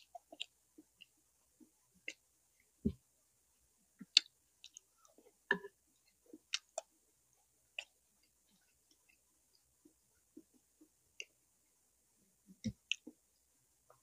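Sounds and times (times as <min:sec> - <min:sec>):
person chewing with mouth clicks: 0:00.0 - 0:02.2, 0:04.0 - 0:06.9, 0:12.5 - 0:13.2.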